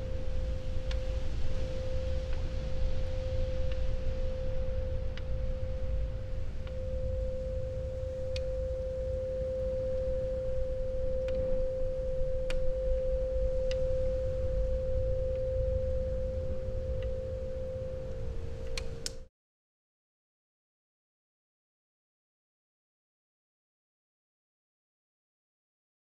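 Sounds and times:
steady pure tone: 0:00.0 - 0:19.3.

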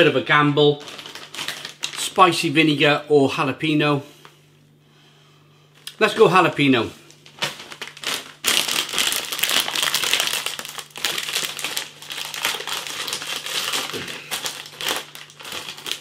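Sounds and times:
snack bag crinkling: 0:00.8 - 0:02.2, 0:07.1 - 0:16.0.

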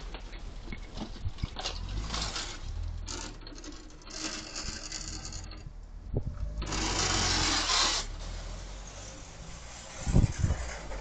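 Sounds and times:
tyres hissing on wet road: 0:06.7 - 0:11.0.

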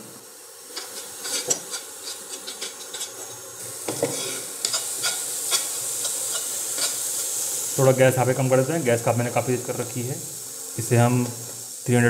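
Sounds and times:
vegetables sizzling: 0:00.0 - 0:12.0
metal spoon scraping a pan: 0:00.7 - 0:07.1.

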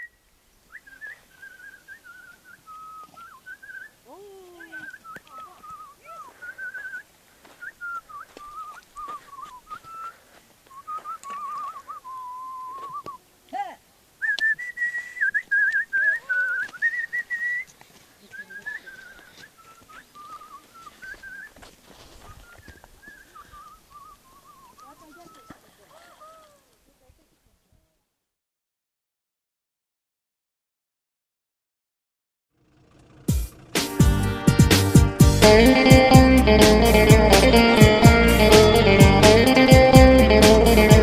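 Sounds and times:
person whistling a tune: 0:00.7 - 0:03.9, 0:04.5 - 0:07.0, 0:07.6 - 0:13.2, 0:14.2 - 0:17.7, 0:18.4 - 0:21.6, 0:35.5 - 0:41.0.

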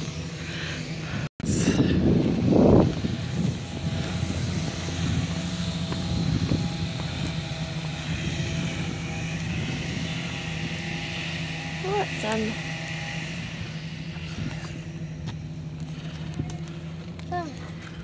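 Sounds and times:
engine drone: 0:00.0 - 0:18.0.

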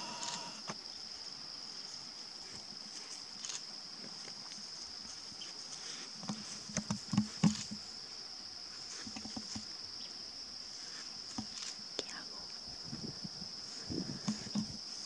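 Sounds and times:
high-pitched insect trill: 0:00.0 - 0:15.0
soft thumps and rustles: 0:06.2 - 0:07.9, 0:08.8 - 0:09.7, 0:12.9 - 0:14.8.

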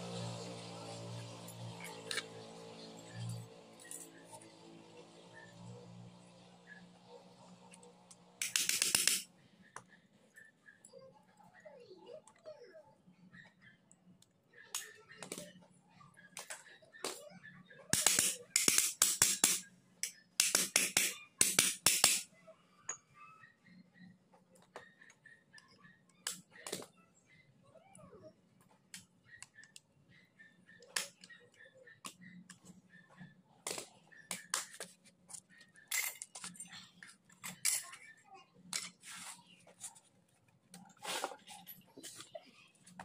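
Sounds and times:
metal parts clicking and clinking: 0:08.4 - 0:09.2, 0:35.9 - 0:38.0.

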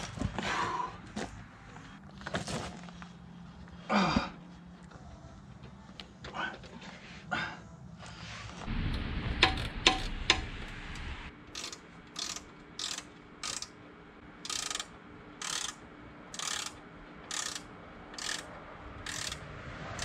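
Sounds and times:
sharp metal clicks: 0:08.9 - 0:13.8, 0:14.4 - 0:20.0
ratchet wrench clicking: 0:09.4 - 0:13.8, 0:14.4 - 0:20.0.

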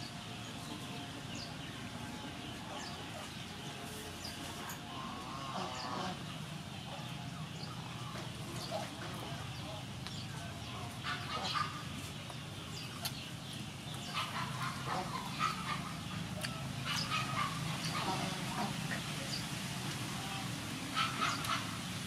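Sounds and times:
poultry calling: 0:02.1 - 0:09.9, 0:10.7 - 0:12.0, 0:13.9 - 0:19.1, 0:20.0 - 0:21.8.

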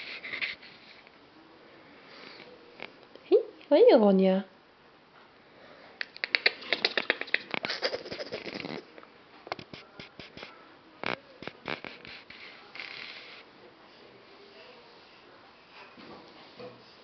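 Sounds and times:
puppy sniffing: 0:06.0 - 0:08.9, 0:11.4 - 0:13.5.

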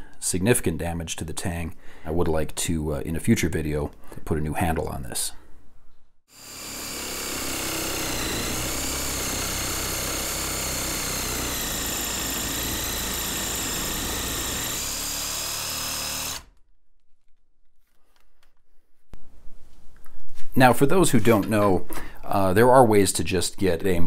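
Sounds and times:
reciprocating saw cutting: 0:06.3 - 0:16.6.

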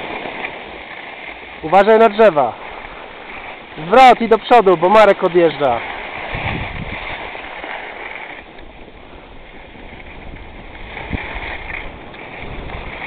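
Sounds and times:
skis scraping over snow: 0:00.0 - 0:13.0
wind on microphone: 0:05.9 - 0:13.0.

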